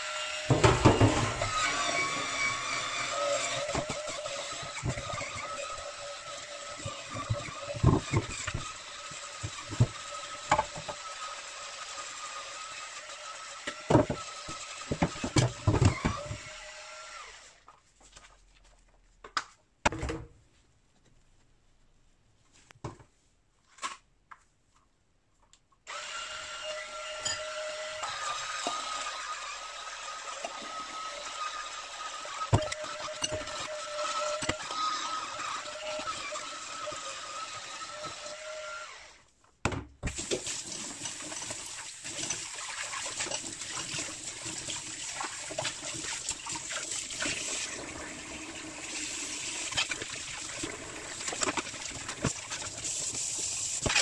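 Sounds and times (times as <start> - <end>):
cleaning brush motor whine: 0.0 - 6.2.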